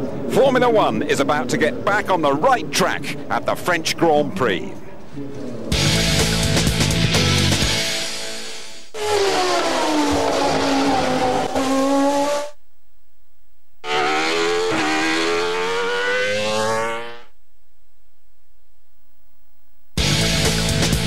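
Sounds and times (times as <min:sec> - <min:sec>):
music: 0:05.7 - 0:08.9, 0:20.0 - 0:21.0
racing car engine at high revs: 0:09.0 - 0:12.6, 0:13.8 - 0:17.3.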